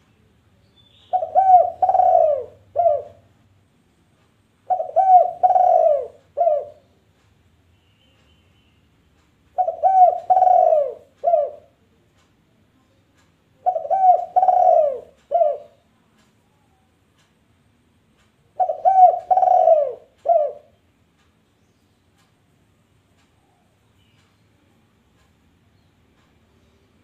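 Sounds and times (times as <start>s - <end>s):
dove cooing: 1.1s - 3.3s, 4.7s - 6.9s, 9.6s - 11.8s, 13.6s - 15.8s, 18.6s - 20.8s.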